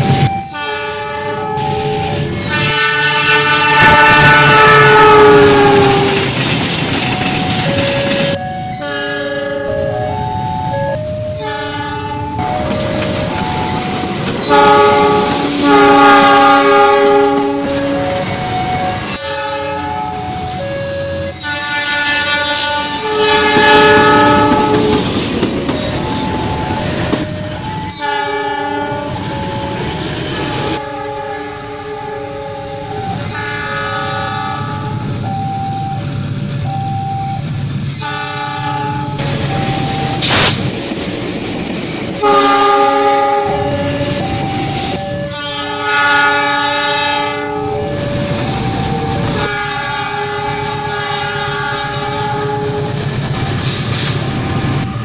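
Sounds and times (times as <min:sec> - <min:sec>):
train running noise: 0:00.0 - 0:55.0
locomotive air horn blasts: 0:00.1 - 0:06.3, 0:08.3 - 0:09.8, 0:11.3 - 0:12.5, 0:14.4 - 0:18.2, 0:18.8 - 0:25.1, 0:27.8 - 0:29.3, 0:30.3 - 0:35.1, 0:37.9 - 0:39.3, 0:42.2 - 0:48.0, 0:49.2 - 0:52.9
single-note horn toots: 0:00.3 - 0:06.2, 0:14.4 - 0:18.0, 0:21.3 - 0:25.0.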